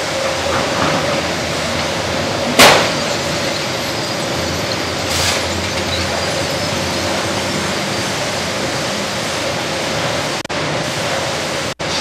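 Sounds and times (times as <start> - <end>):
sawmill machinery running: 0.0 - 12.0
loud bang: 2.6 - 3.2.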